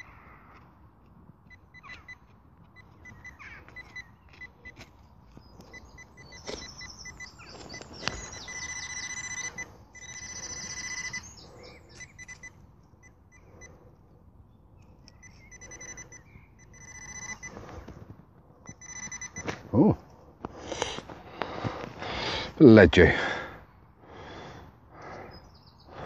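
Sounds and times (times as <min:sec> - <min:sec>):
metal detector probe beeping: 0:01.4 - 0:14.1, 0:14.8 - 0:20.0.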